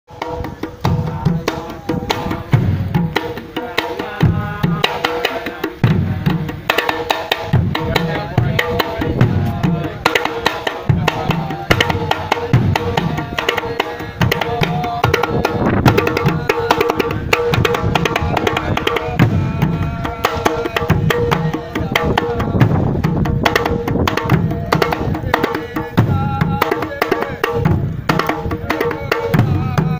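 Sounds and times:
fast hand drum taps: 0.2s - 29.9s
low bass drum strokes: 0.3s - 3.2s, 14.2s - 26.6s.

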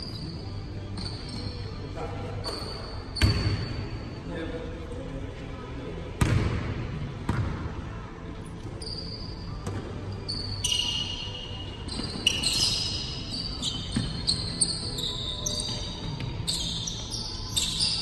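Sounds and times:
sneakers squeaking on court: 0.0s - 4.0s, 8.6s - 18.0s.

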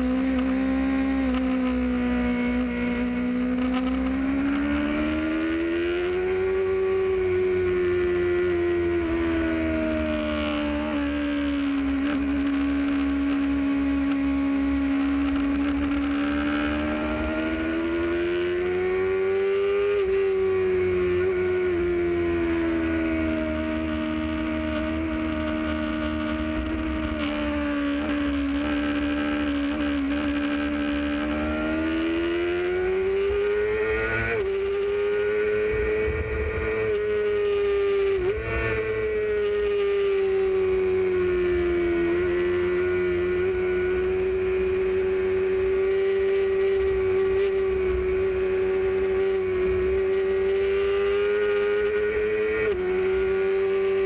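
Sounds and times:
motorcycle engine at high revs: 0.0s - 54.0s
low wind rumble: 31.2s - 45.8s.

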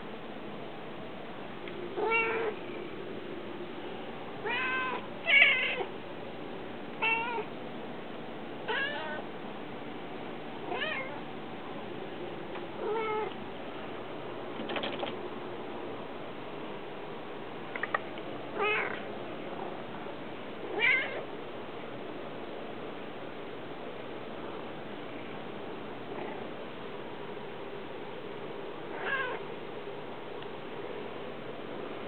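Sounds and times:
cat meowing: 2.0s - 2.6s, 4.4s - 5.9s, 7.0s - 7.5s, 8.7s - 9.2s, 10.7s - 11.2s, 12.8s - 13.3s, 18.6s - 19.0s, 20.7s - 21.2s, 28.9s - 29.4s.

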